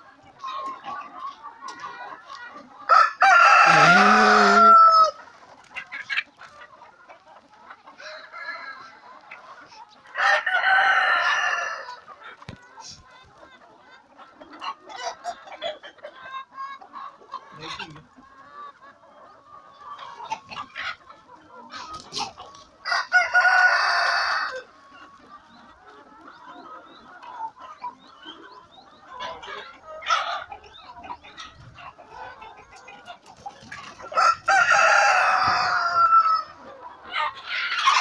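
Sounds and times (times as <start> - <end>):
chickens clucking: 0.0 - 38.0
rooster crowing: 2.9 - 5.2, 10.2 - 11.9, 22.8 - 24.6, 34.2 - 36.5.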